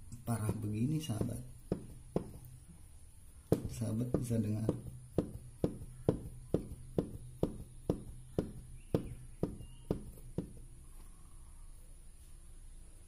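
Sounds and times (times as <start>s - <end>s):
engine bearing knocking: 0.4s - 2.5s, 3.5s - 10.6s.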